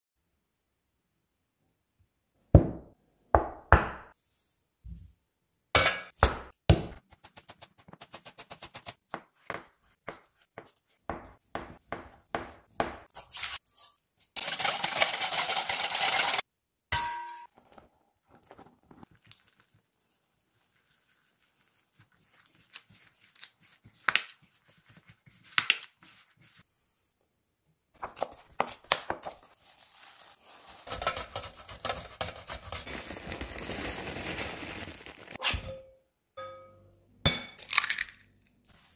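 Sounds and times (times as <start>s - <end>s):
fast stirring of liquid: 14.4s - 16.4s, 19.0s - 26.6s, 30.5s - 32.9s
utensils clinking on metal bowl: 14.4s - 16.4s
plastic wrap crinkling: 29.1s - 31.4s, 32.6s - 35.4s.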